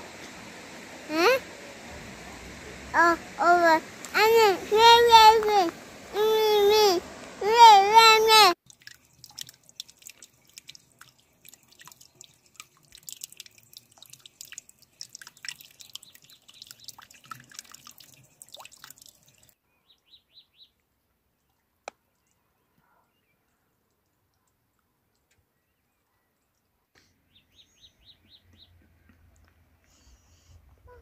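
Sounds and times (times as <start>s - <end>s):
water trickling into pot: 8.6s - 19.6s
faint high bird chirps: 27.2s - 28.8s.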